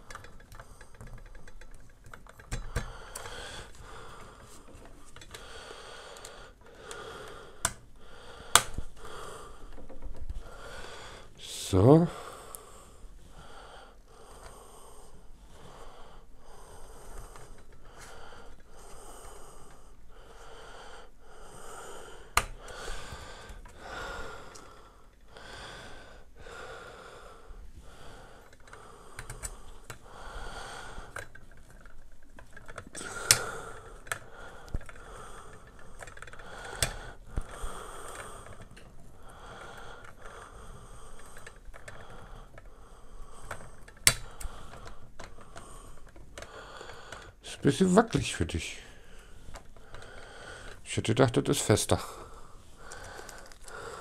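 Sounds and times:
screwdriver clicking against metal: 0:43.4 - 0:46.5.

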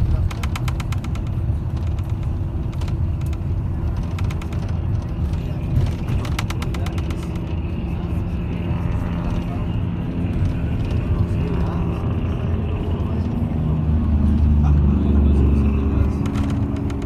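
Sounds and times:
rapid rattling clicks: 0:00.0 - 0:07.6, 0:16.0 - 0:17.0
road and engine rumble: 0:00.0 - 0:17.0.

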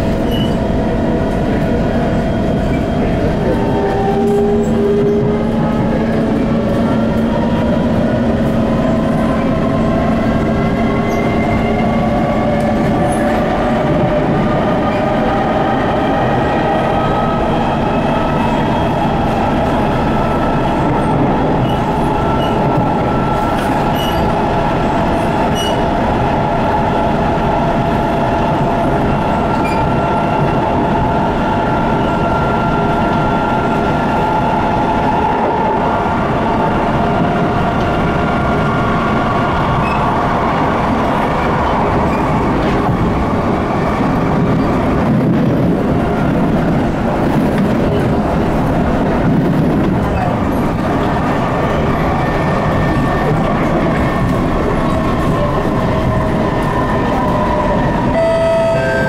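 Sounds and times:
train wheels rumbling on rails: 0:00.0 - 0:59.0
train motor whine: 0:58.1 - 0:59.0.

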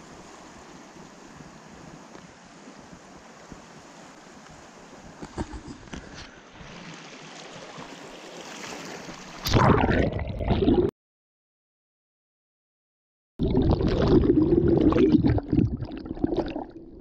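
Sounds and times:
river water flowing: 0:00.0 - 0:05.2, 0:06.0 - 0:09.4.

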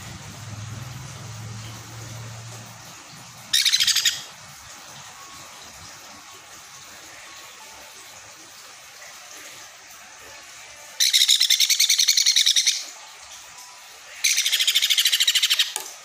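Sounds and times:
parrot chick begging call: 0:03.6 - 0:04.3.

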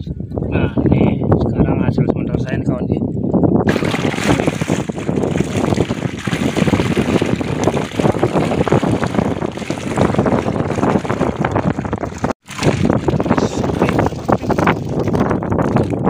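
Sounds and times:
wind buffeting microphone: 0:00.0 - 0:16.0
water splashing and sloshing: 0:03.6 - 0:16.0.

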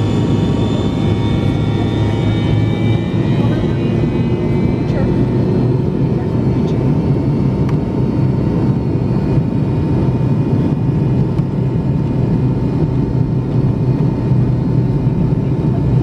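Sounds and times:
thin steady whine: 0:00.0 - 0:07.0
low drone of jet engines: 0:00.0 - 0:16.0.

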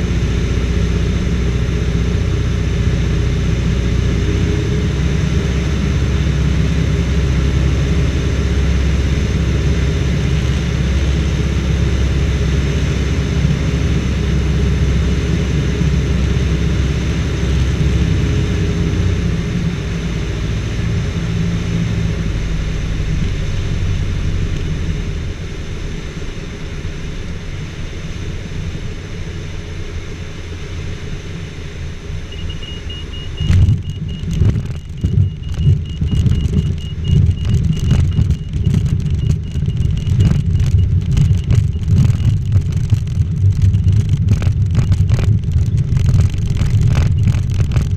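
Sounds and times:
aircraft engine idling: 0:00.0 - 0:47.9
sudden bumps: 0:33.4 - 0:47.9
wheels rumbling over grass: 0:33.4 - 0:47.9.

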